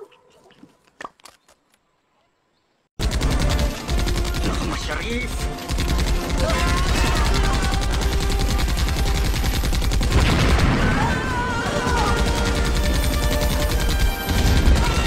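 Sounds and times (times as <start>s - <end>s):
machine-gun fire: 3.0s - 15.0s
loud explosion: 10.1s - 12.2s.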